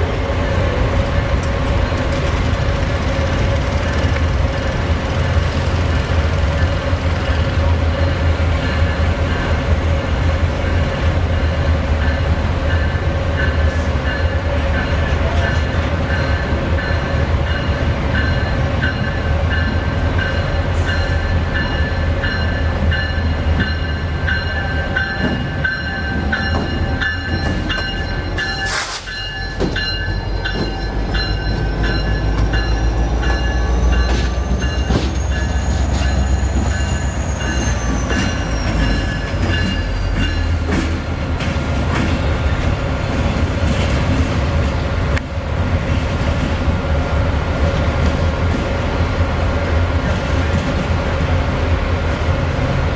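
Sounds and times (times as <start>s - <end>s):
diesel locomotive engine rumble: 0.0s - 52.9s
locomotive bell ringing: 11.4s - 40.7s.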